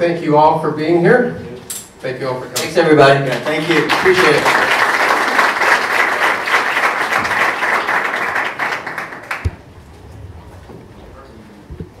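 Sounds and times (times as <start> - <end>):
audience applause: 3.3 - 9.7.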